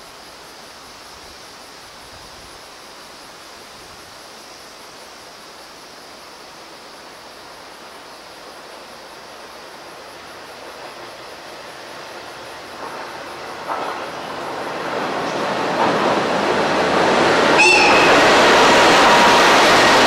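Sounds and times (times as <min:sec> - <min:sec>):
river water rushing: 0:11.8 - 0:20.0.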